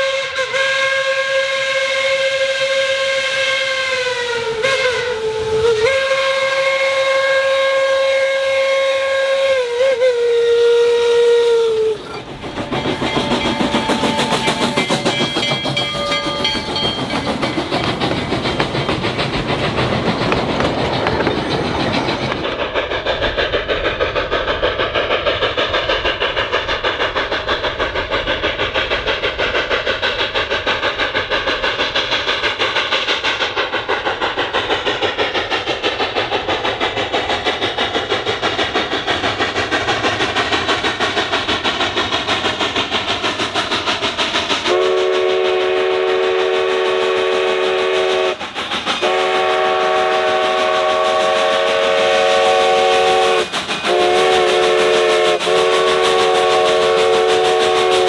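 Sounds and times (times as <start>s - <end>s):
steam whistle blasts: 0.0s - 12.2s, 13.1s - 15.1s, 44.7s - 48.4s, 49.0s - 58.0s
steam locomotive chuffing: 0.0s - 58.0s.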